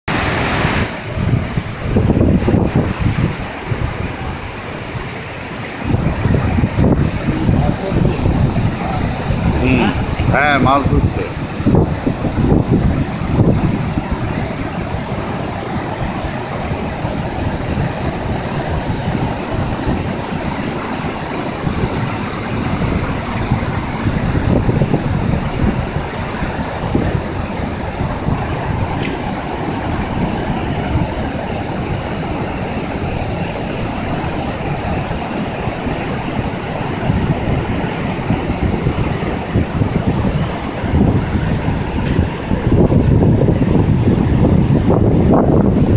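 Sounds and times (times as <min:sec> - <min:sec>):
floodwater rushing through gates: 0:00.1 - 0:45.9
wind buffeting microphone: 0:00.1 - 0:45.9.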